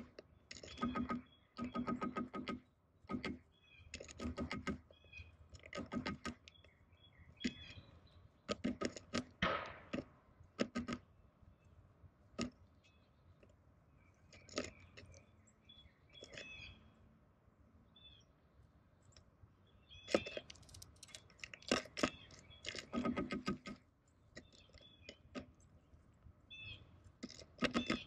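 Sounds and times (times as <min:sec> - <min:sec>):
bird pecking with tapping clicks: 0:00.0 - 0:04.8, 0:08.5 - 0:11.0.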